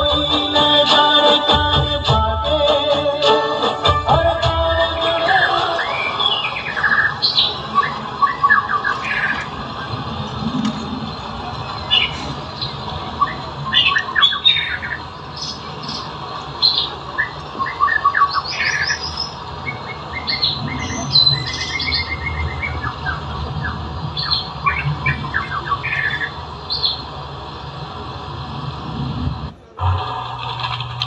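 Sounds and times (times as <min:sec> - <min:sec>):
steady low hum: 0:06.8 - 0:31.0.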